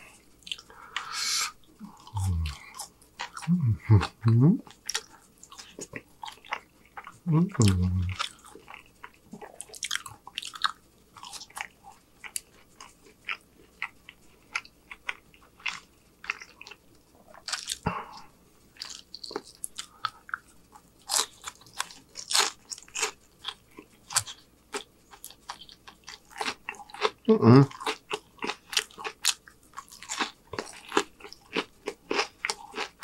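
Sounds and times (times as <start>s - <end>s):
wet mouth sounds: 0.5s - 5.0s, 7.3s - 8.4s
crisp chewing crunches: 1.8s - 17.8s, 18.8s - 33.0s.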